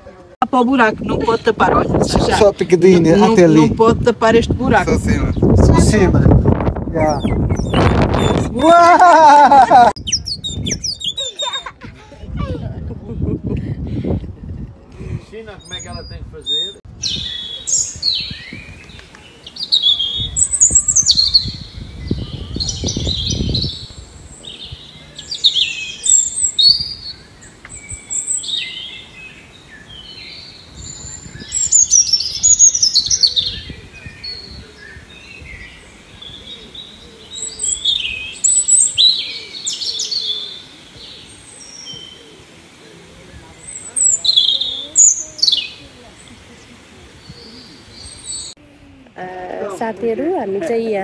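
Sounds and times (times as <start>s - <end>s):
clay bird whistle chirping: 10.0s - 11.6s.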